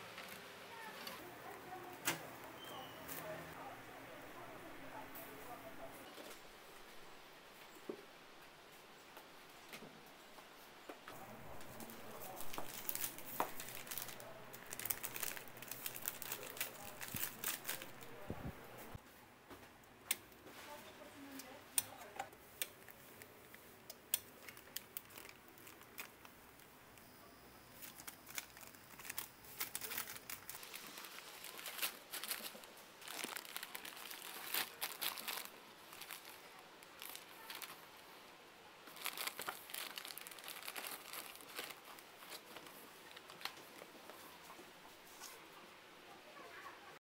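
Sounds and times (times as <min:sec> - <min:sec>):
crinkling and rustling: 0:00.0 - 0:03.7, 0:10.9 - 0:27.1, 0:27.7 - 0:38.2, 0:38.8 - 0:45.5.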